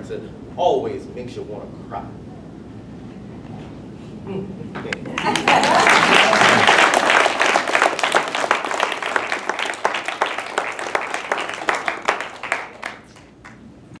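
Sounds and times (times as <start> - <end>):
audience applauding: 5.2 - 13.6.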